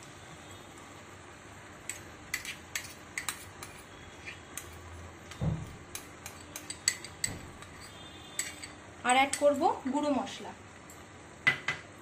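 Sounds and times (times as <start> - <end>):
spoon scraping a bowl: 1.9 - 4.9, 5.9 - 8.8.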